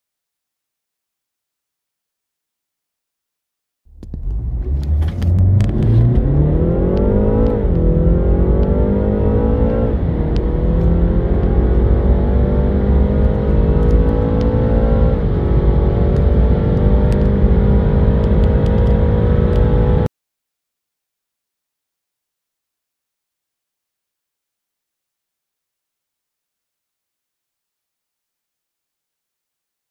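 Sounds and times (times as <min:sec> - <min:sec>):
car engine accelerating: 0:03.9 - 0:20.1.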